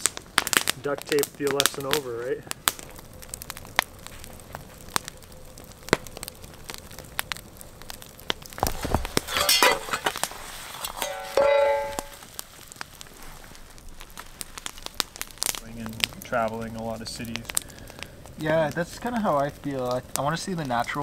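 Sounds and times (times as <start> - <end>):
campfire crackling and popping: 0.0 - 21.0
metal pot lid clinking: 9.3 - 10.1, 11.0 - 12.2.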